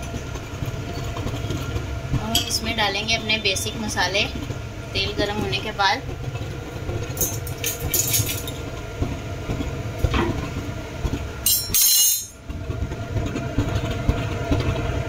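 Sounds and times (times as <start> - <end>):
gas hob low rumble: 0.0 - 15.0
spoons and lids clinking: 7.2 - 8.6, 11.5 - 12.4.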